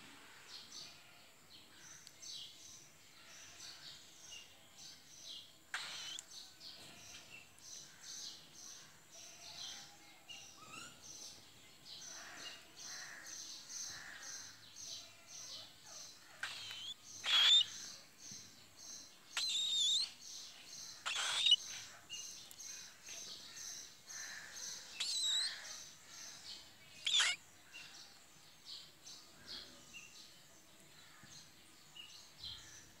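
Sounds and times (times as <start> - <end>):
cockatiels whistling calls: 16.4 - 17.7, 21.0 - 21.6, 27.0 - 27.4.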